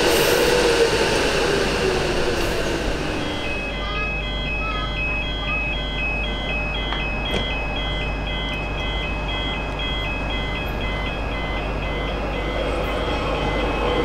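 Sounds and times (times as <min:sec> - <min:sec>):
electric train humming: 0:00.0 - 0:14.0
two-tone electronic warning beeps: 0:03.2 - 0:14.0.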